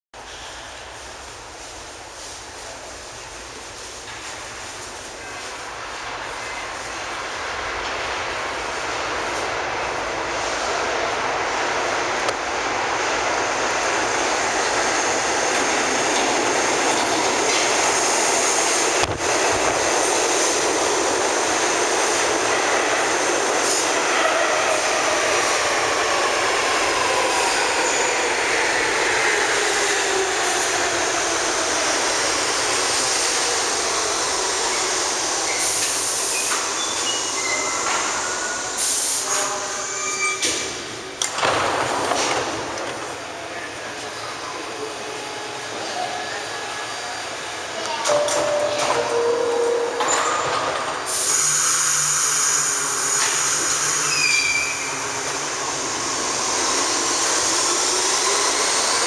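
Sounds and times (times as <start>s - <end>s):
train wheels rumbling on rail: 0.2s - 59.0s
train doors clunk: 47.9s - 51.1s
train brake whine: 48.1s - 59.0s.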